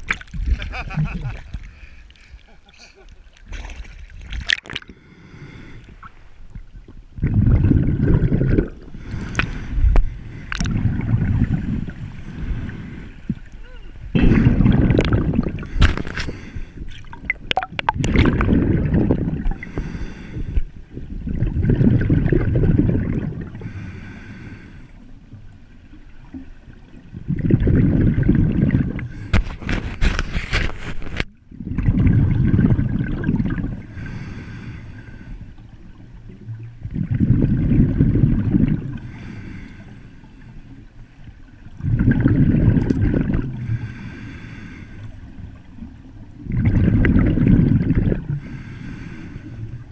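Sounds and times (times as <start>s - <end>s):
diver inhaling through regulator: 4.8s - 6.1s, 8.6s - 13.4s, 15.5s - 16.9s, 19.5s - 20.7s, 23.5s - 25.0s, 33.8s - 35.6s, 38.9s - 40.7s, 43.6s - 45.2s, 48.2s - 49.9s
diver exhaling bubbles underwater: 7.2s - 20.0s, 21.0s - 23.8s, 27.1s - 30.3s, 31.5s - 34.6s, 36.2s - 39.3s, 41.8s - 44.0s, 46.4s - 48.7s.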